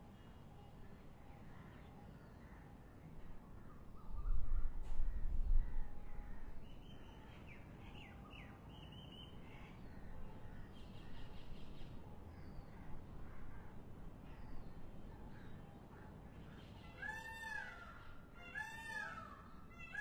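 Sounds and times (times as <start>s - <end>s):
wind rumble on microphone: 4.0s - 6.6s.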